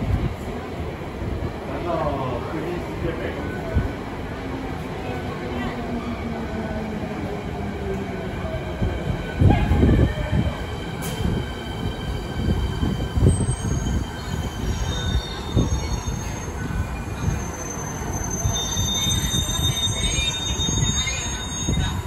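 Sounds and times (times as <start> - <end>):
subway train rumbling: 0.0 - 22.0
high wheel squeal: 13.2 - 22.0.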